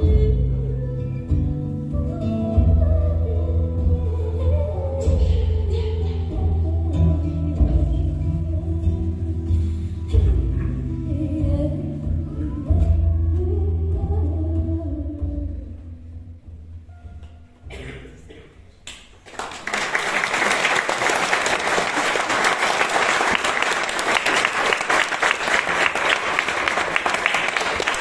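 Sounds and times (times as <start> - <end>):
audience applauding: 19.2 - 28.0.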